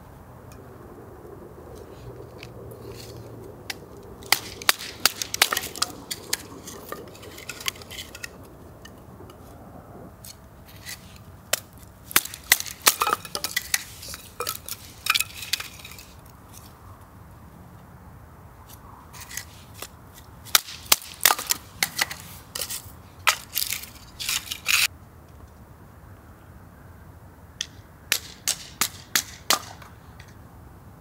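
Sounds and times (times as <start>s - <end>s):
camp gear clicking and clinking: 4.2s - 9.4s, 10.7s - 16.8s.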